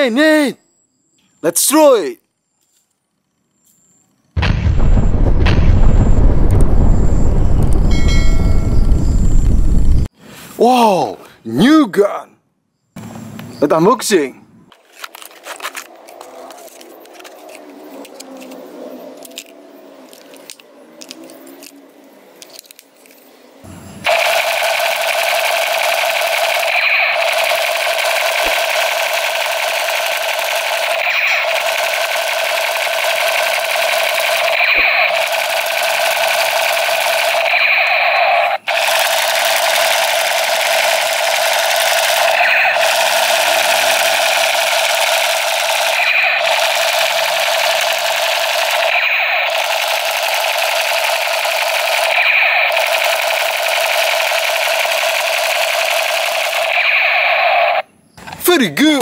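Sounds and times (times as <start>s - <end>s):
toy gun electronic buzzing: 24.1s - 57.8s.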